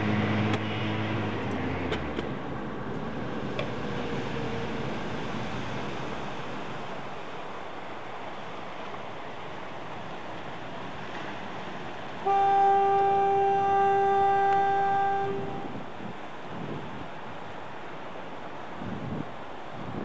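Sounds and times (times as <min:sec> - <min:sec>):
rushing wind: 0:00.0 - 0:20.0
horn steady note: 0:12.2 - 0:15.7.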